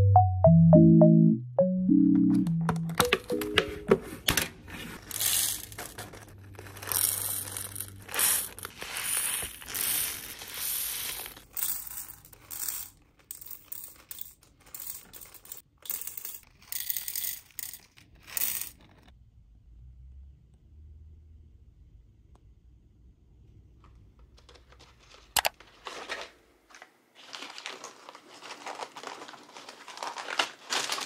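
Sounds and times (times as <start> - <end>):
plastic packaging crinkling and tearing: 24.8 - 31.0.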